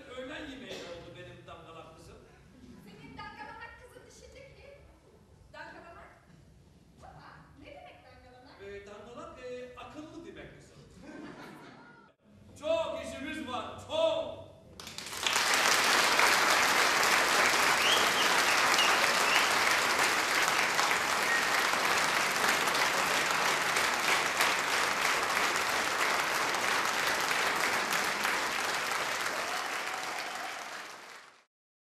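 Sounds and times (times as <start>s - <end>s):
audience applauding: 14.8s - 31.5s.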